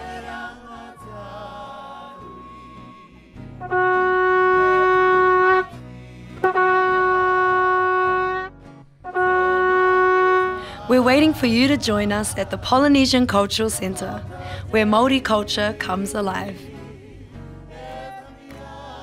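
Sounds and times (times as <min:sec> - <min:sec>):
soft music: 0:00.0 - 0:19.0
horn long held notes: 0:01.0 - 0:15.6.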